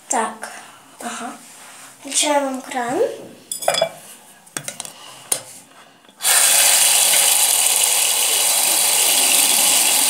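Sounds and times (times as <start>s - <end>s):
bathroom tap running: 6.2s - 10.0s.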